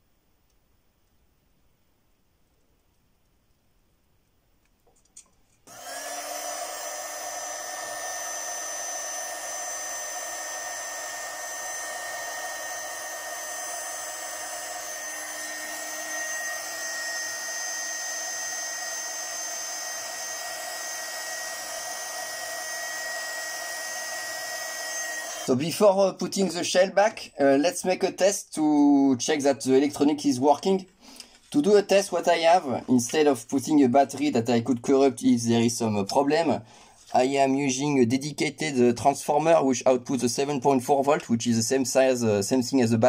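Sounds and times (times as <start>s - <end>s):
heat gun blowing with whine: 5.6s - 25.6s.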